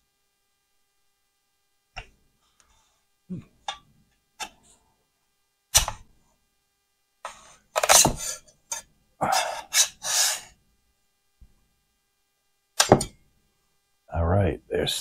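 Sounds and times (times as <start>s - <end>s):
metal scraper scraping: 7.3s - 10.5s.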